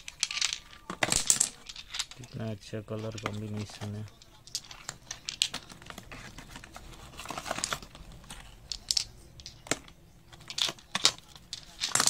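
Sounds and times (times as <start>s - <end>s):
glass bottles clicking together: 0.0s - 6.3s, 7.4s - 12.0s
plastic packaging crinkling: 3.0s - 12.0s.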